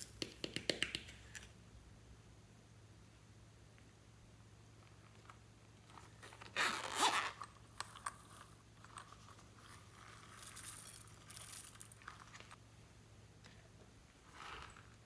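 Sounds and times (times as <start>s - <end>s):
zipper pulled open: 5.9s - 7.6s, 14.2s - 15.0s.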